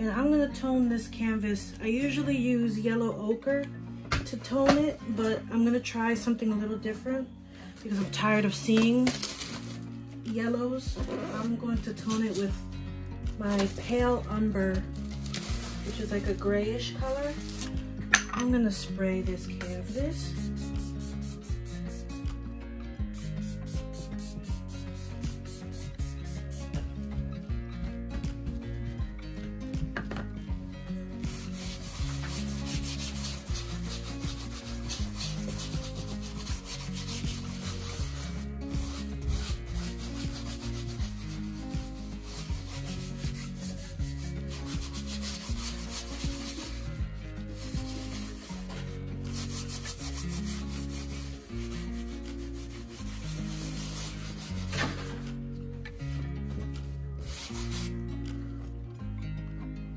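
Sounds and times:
background music: 0.0s - 59.9s
paint rubbing on canvas: 15.4s - 16.4s, 19.8s - 22.2s, 23.2s - 26.9s, 31.2s - 55.4s, 57.2s - 58.0s.

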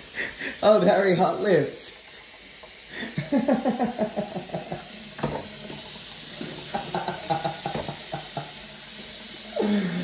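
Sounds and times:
tap running into a steel sink: 5.1s - 8.5s.

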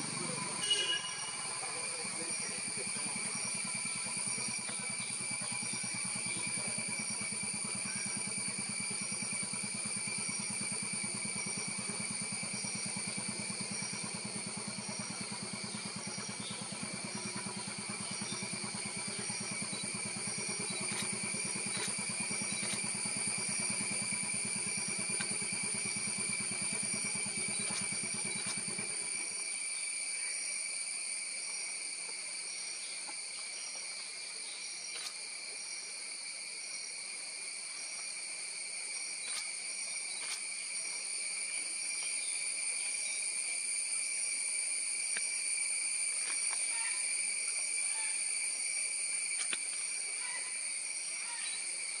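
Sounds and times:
low engine idling: 0.0s - 29.4s
insects droning: 0.0s - 52.0s.

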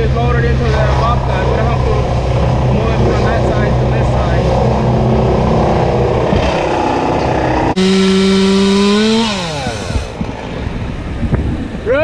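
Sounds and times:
engine noise: 0.0s - 11.8s
chainsaw at full throttle: 6.4s - 10.2s.

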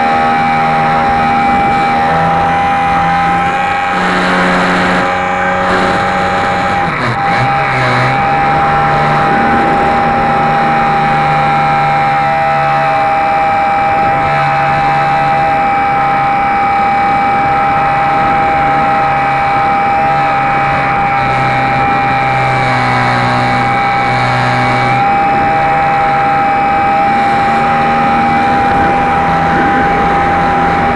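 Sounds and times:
electric motor and propeller whine: 0.0s - 30.9s
rushing air noise: 0.0s - 30.9s.

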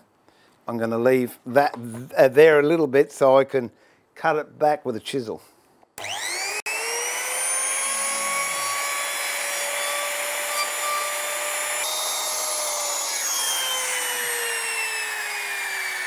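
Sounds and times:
router motor whining: 6.0s - 16.0s.

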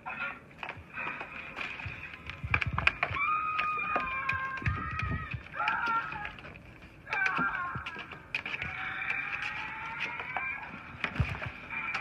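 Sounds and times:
plastic bottle crackling: 0.6s - 12.0s.

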